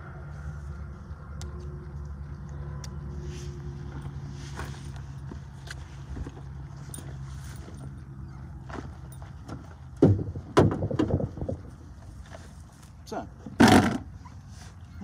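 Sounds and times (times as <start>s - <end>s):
hard knocks: 10.0s - 11.6s.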